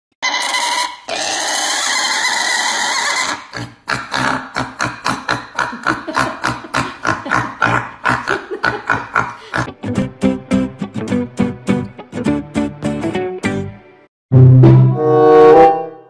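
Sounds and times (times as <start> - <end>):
piglet squealing: 0.2 - 5.8.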